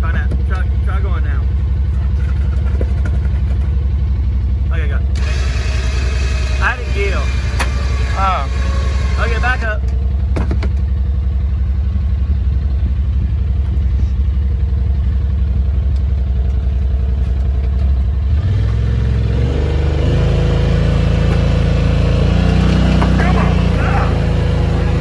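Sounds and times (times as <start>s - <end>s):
engine idling and revving: 0.0s - 25.0s.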